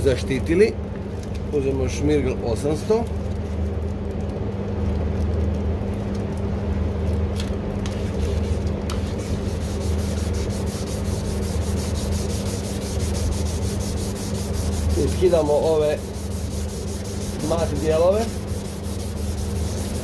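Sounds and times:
sandpaper rubbing plastic: 7.8 - 20.0.

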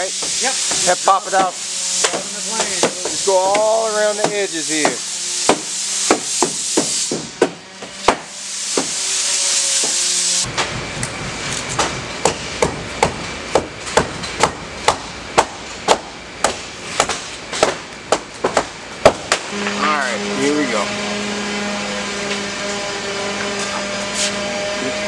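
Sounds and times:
air hissing: 0.0 - 10.5
mallet striking wedges: 2.0 - 8.9, 11.8 - 19.5.

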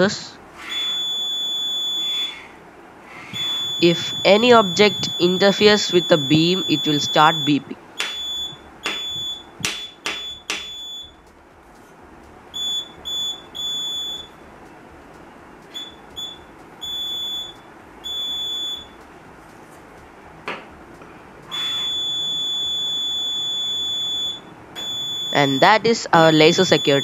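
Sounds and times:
alarm buzzer beeping: 0.6 - 2.5, 3.1 - 11.2, 12.6 - 14.4, 15.7 - 19.0, 21.5 - 27.0
sharp taps: 8.8 - 10.7.

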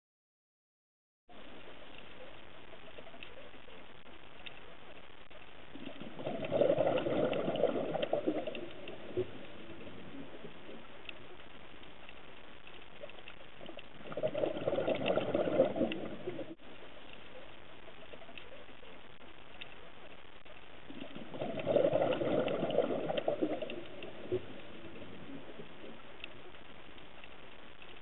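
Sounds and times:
faint underwater hiss: 1.3 - 28.0
exhaled bubbles gurgling: 5.7 - 11.1, 13.0 - 16.6, 20.8 - 26.6.

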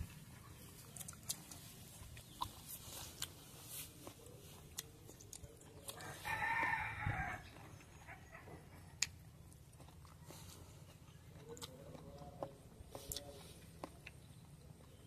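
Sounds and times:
sharp eating clicks: 0.0 - 6.8, 7.4 - 15.0
rooster crowing: 6.0 - 8.4.

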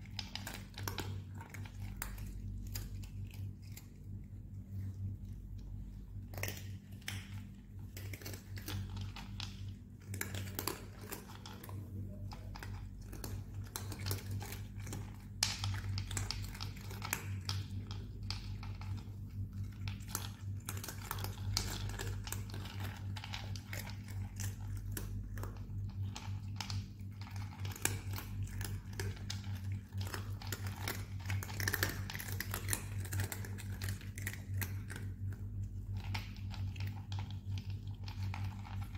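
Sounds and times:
cats crunching dry kibble: 0.0 - 38.9
steady low hum: 0.0 - 38.9.

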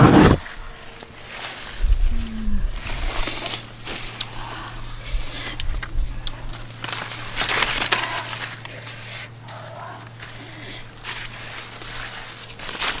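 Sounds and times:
leaves and vines rustling: 0.0 - 13.0.

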